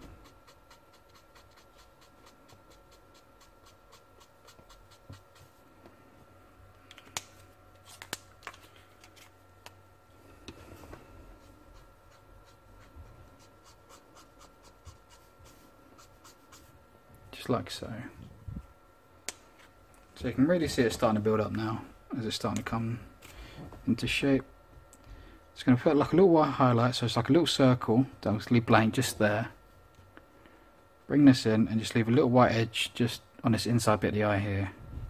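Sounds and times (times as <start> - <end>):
marker scratching on paper: 0.0 - 5.6, 11.4 - 16.7.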